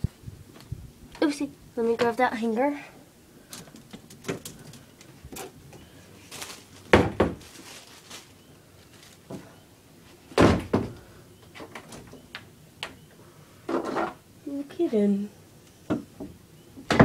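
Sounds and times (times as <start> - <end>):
knocks and clatters of handling: 3.5 - 5.6
loud thumps: 6.9 - 7.5.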